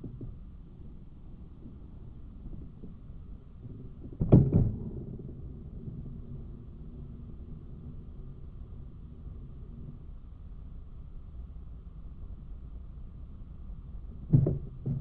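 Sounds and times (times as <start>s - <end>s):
low rumble: 4.7s - 11.6s.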